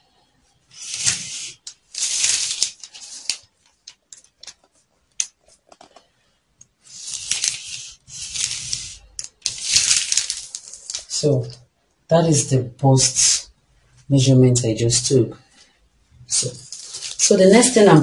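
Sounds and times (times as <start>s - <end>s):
marker scratching on paper: 0.7s - 3.3s, 6.8s - 9.6s.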